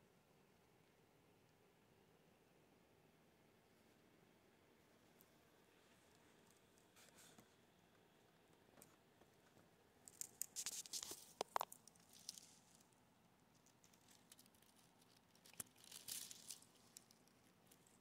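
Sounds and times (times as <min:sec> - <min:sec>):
plastic packaging crinkling: 0:10.1 - 0:12.8, 0:13.9 - 0:17.3.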